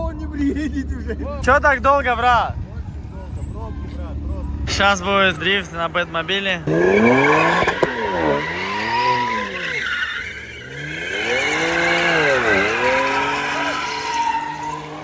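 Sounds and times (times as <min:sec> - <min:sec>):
car engine revving: 0:03.3 - 0:15.0
tyres squealing: 0:03.3 - 0:15.0.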